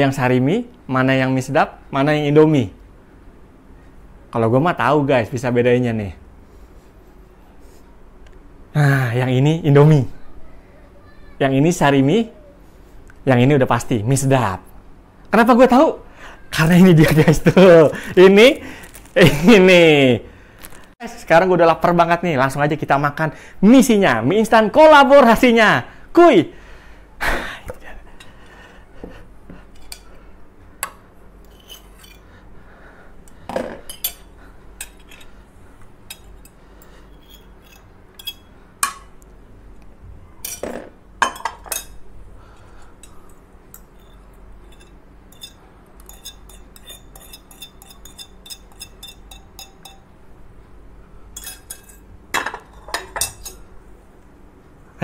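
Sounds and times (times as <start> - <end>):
metal spoons scraping ceramic: 31.4 - 32.3, 33.9 - 35.4, 36.1 - 38.5, 43.0 - 50.1, 51.4 - 52.1
ceramic bowls clinking on table: 40.4 - 42.0, 44.8 - 50.1.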